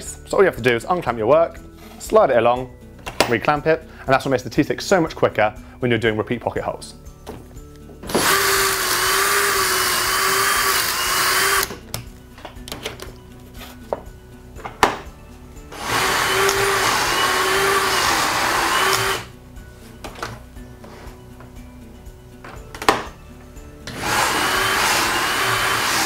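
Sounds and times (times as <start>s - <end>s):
cordless drill motor whine: 8.1s - 11.7s, 15.7s - 19.3s, 23.9s - 26.0s.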